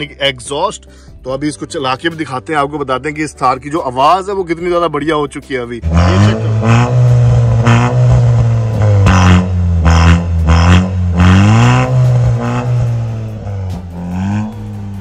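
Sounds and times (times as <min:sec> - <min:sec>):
car engine revving in blips: 0:05.8 - 0:15.0.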